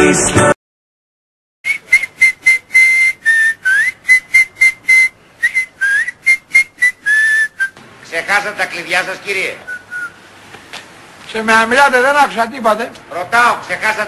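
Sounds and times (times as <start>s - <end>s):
man whistling: 1.6s - 7.8s, 9.6s - 10.2s.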